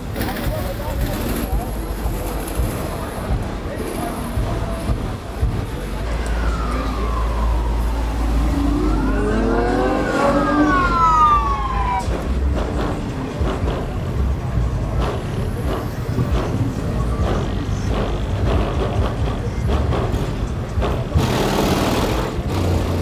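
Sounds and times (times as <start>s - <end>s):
low rumble of traffic: 0.0s - 23.0s
emergency siren wailing: 6.0s - 12.3s.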